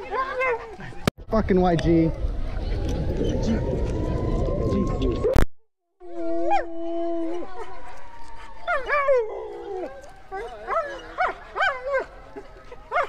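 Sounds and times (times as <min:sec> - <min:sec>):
husky howling: 0:06.0 - 0:13.0.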